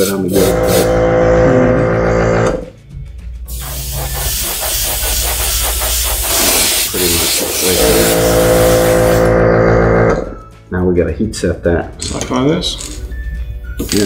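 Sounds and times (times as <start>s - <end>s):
airbrush hissing: 0.0s - 1.0s, 3.5s - 9.3s
humming tone: 0.4s - 2.7s, 8.2s - 10.4s.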